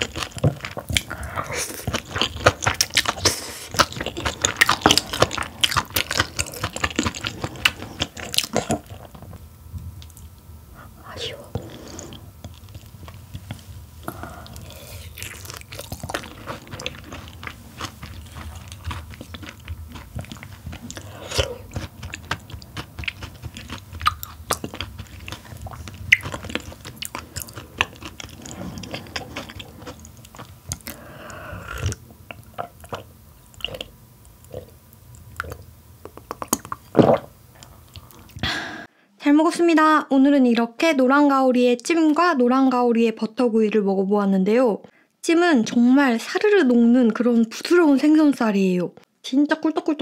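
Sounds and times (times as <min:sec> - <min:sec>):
close chewing with mouth clicks: 0:00.0 - 0:10.4, 0:11.5 - 0:38.4.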